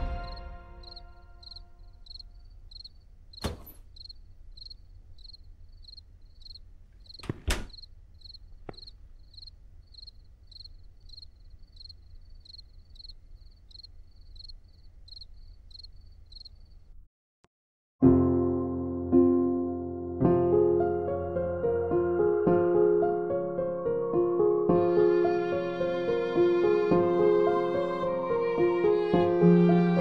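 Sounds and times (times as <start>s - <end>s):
cricket chirping: 0.2s - 16.9s
sharp knocks: 3.4s - 3.8s, 7.2s - 7.8s.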